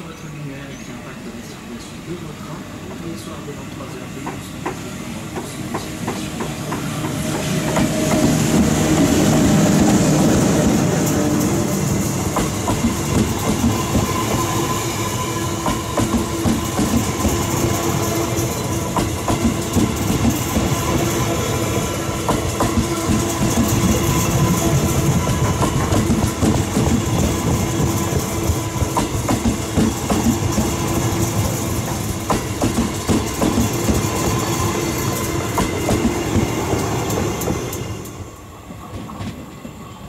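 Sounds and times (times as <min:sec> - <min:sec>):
electric locomotive passing: 0:00.0 - 0:40.0
train wheels clickety-clack: 0:03.8 - 0:39.8.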